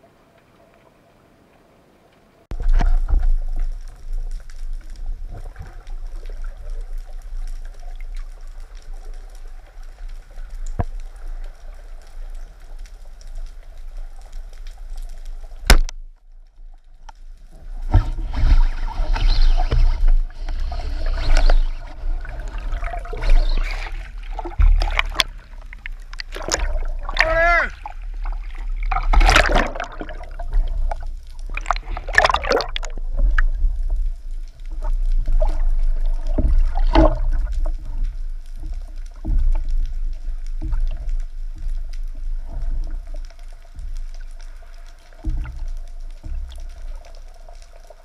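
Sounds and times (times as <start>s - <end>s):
underwater low rumble: 0.0s - 48.0s
faint ticks: 0.2s - 17.9s, 32.8s - 48.0s
churning bubbling water: 21.0s - 33.6s.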